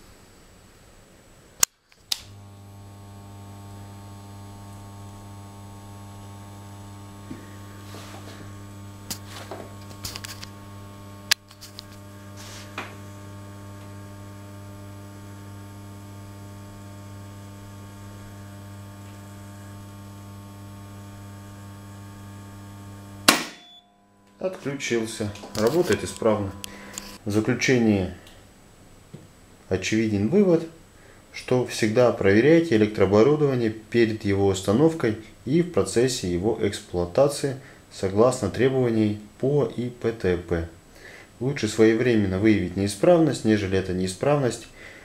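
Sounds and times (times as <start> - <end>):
transformer humming with mains buzz: 0.2 - 34.8
circuit breaker tripping snap: 11.2 - 12.1, 23.1 - 27.2
clicks: 24.2 - 27.2.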